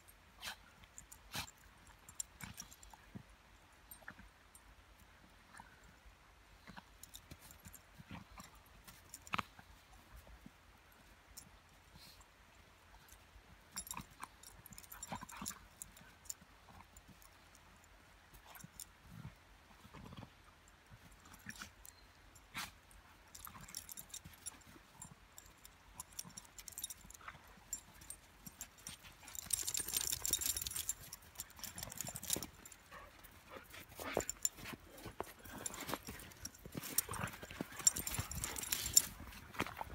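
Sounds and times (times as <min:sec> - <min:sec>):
paws crunching in snow: 0:26.1 - 0:39.9.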